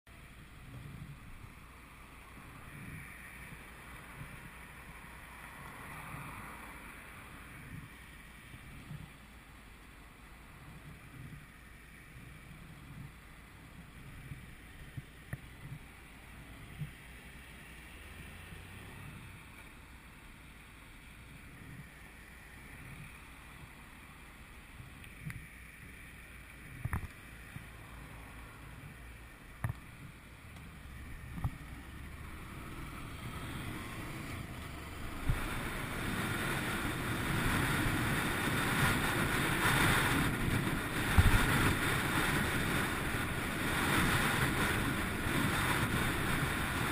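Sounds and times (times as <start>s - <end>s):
wind noise on helmet: 0.6s - 1.7s, 2.3s - 5.1s, 7.4s - 9.2s, 10.5s - 17.0s, 21.3s - 23.8s, 24.8s - 27.8s, 28.8s - 46.9s.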